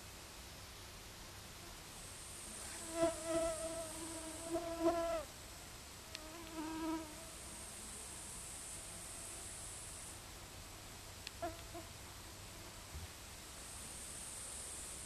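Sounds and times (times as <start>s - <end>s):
faint high hiss: 0.0s - 15.0s
flying insect buzzing: 2.3s - 5.3s, 6.1s - 10.2s.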